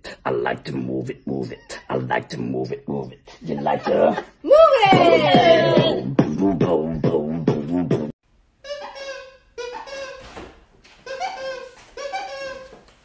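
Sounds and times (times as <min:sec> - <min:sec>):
beatboxing: 0:00.0 - 0:04.2, 0:04.8 - 0:08.2
short pitched vocal phrases: 0:00.0 - 0:08.2.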